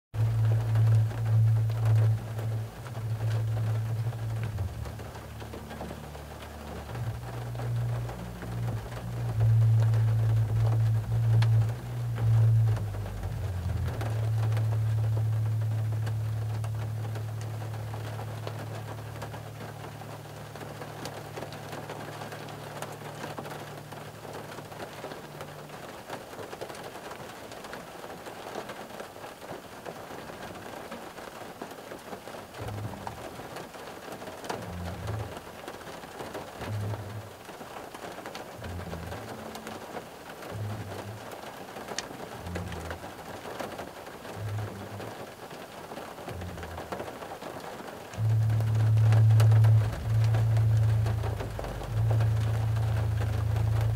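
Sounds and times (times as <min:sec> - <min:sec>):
rain on car roof: 0:00.1 - 0:53.9
low pulsing beat: 0:00.2 - 0:25.9, 0:32.6 - 0:33.5, 0:34.6 - 0:35.7, 0:36.6 - 0:37.4, 0:38.5 - 0:41.5, 0:42.3 - 0:45.4, 0:46.3 - 0:47.2, 0:48.1 - 0:53.9
low hum: 0:00.2 - 0:26.2, 0:32.6 - 0:33.6, 0:34.4 - 0:35.8, 0:36.5 - 0:37.5, 0:38.5 - 0:45.3, 0:46.3 - 0:47.2, 0:48.1 - 0:53.9.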